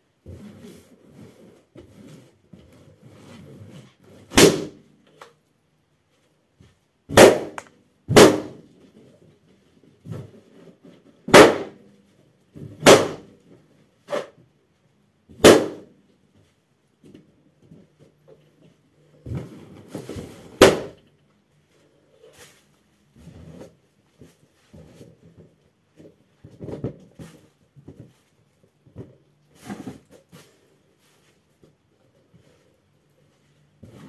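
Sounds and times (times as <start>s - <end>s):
balloons popping: 7.1s - 8.6s.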